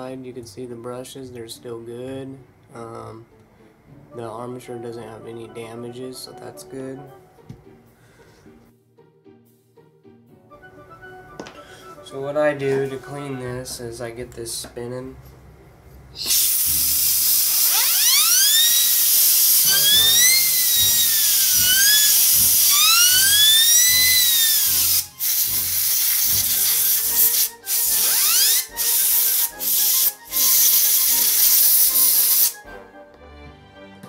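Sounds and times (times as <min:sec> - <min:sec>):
spinning armature whine: 0:16.2 - 0:32.6
compressed air hissing: 0:16.2 - 0:32.7.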